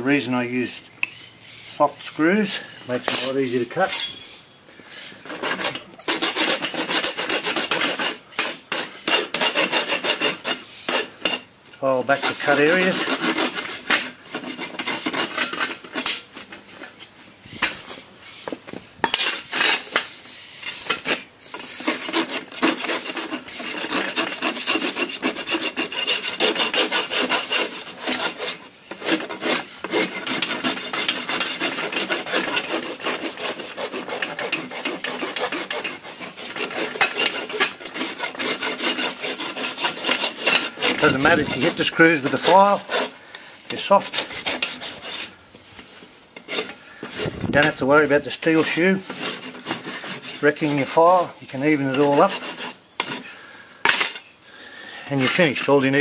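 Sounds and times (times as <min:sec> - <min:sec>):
file rasping on hoof: 0:05.2 - 0:11.5, 0:12.1 - 0:16.6, 0:19.2 - 0:45.3, 0:46.4 - 0:53.3, 0:55.1 - 0:56.0.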